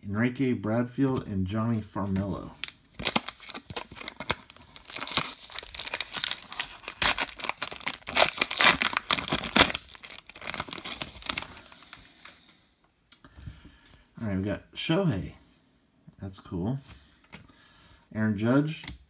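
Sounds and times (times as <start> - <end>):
plastic wrapper tearing and crinkling: 2.5 - 11.9.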